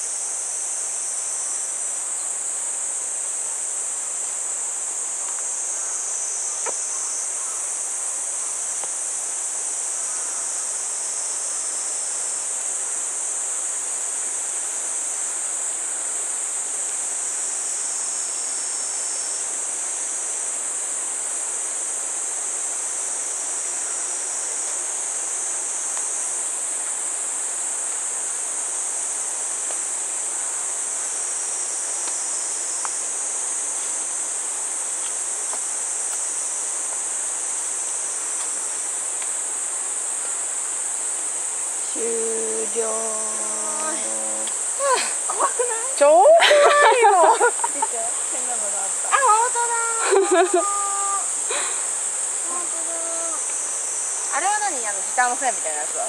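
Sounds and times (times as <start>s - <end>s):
soft background hiss: 0.0s - 56.0s
insects shrilling: 0.2s - 56.0s.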